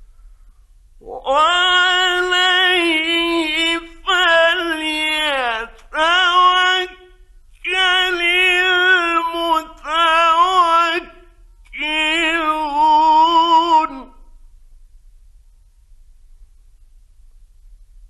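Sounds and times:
man chanting melodically: 1.0 - 14.3.

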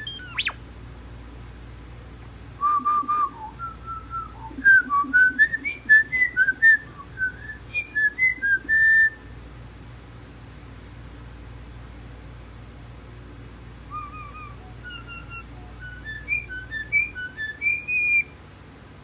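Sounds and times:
person whistling a tune: 2.6 - 9.2.

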